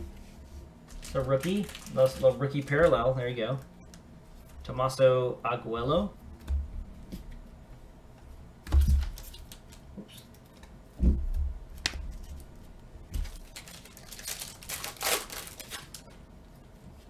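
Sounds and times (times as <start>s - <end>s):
foil wrapper crinkling: 0.9s - 3.6s, 13.2s - 16.1s.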